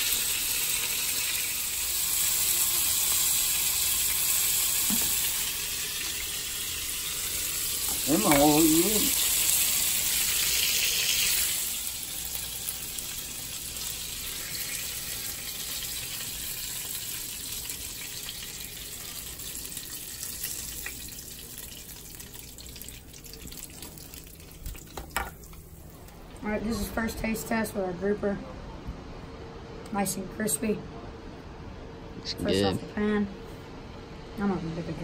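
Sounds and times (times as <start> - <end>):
fish sizzling in a pan: 0.0 - 25.4.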